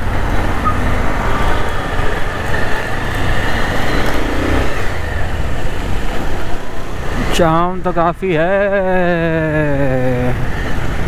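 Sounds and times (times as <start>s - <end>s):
motorcycle engine running: 0.0s - 6.9s
road and traffic noise: 0.0s - 11.0s.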